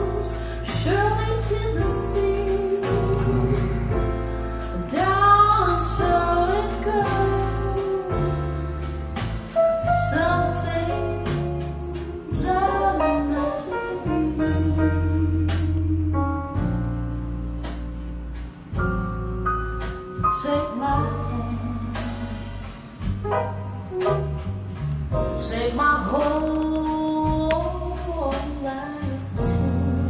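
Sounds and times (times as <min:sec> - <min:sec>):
steady bass notes: 0:00.0 - 0:30.0
song with singing voice: 0:25.4 - 0:30.0.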